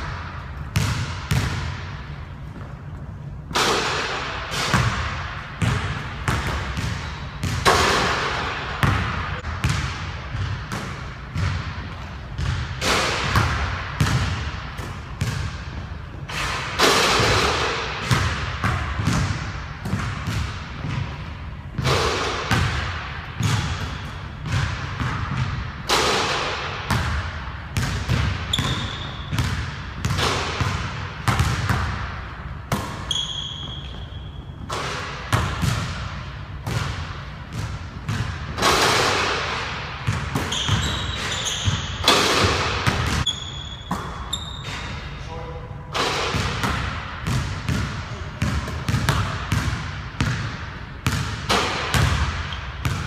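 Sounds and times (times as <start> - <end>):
basketball bouncing on wooden floor: 0.7 - 1.8, 4.7 - 14.6, 16.8 - 26.3, 26.9 - 39.4, 40.0 - 44.8, 46.2 - 53.0
sneakers squeaking on court: 27.8 - 32.1, 32.7 - 39.0, 39.7 - 45.2, 46.3 - 53.0.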